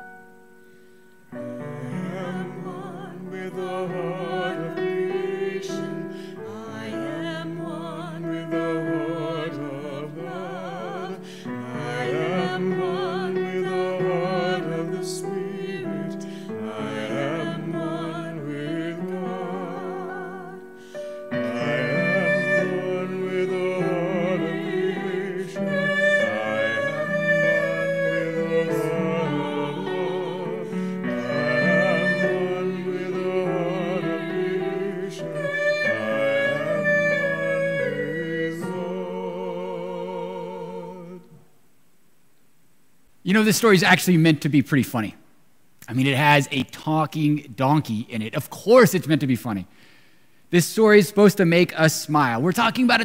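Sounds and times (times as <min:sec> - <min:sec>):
piano accompaniment: 0:00.0 - 0:40.4
woman singing a hymn: 0:01.6 - 0:41.4.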